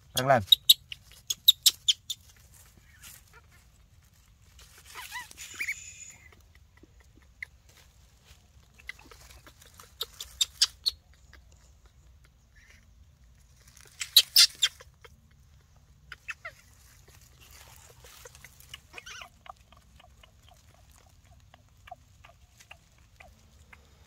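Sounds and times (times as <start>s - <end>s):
short squeaky animal calls: 4.8s - 6.4s, 13.8s - 15.2s, 16.1s - 19.6s.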